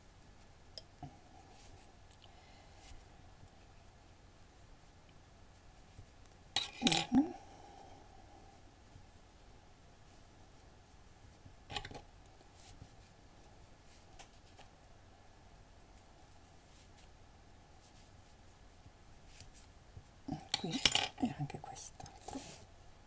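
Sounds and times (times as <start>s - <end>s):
soft rustles: 12.3s - 14.8s, 15.5s - 22.9s.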